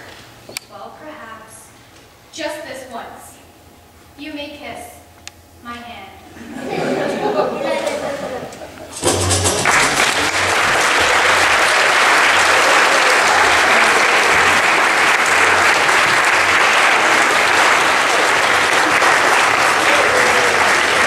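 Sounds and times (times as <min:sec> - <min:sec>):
audience applauding: 0:09.0 - 0:21.0.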